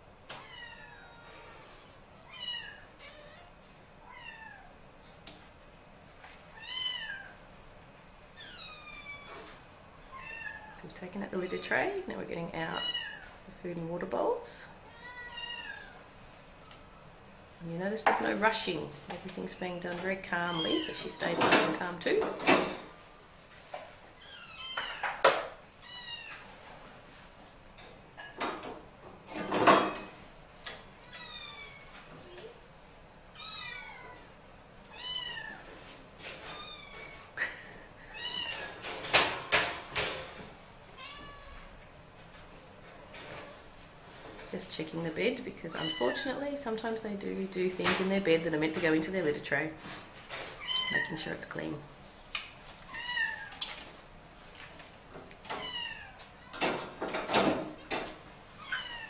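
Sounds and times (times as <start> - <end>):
cat meowing: 14.9 - 16.0, 31.0 - 31.9, 33.4 - 34.3, 34.9 - 35.6, 41.0 - 41.7, 52.9 - 53.6, 55.6 - 56.6, 58.6 - 59.0
cage knocks and clatters: 28.2 - 30.2, 38.6 - 40.6, 56.5 - 58.2.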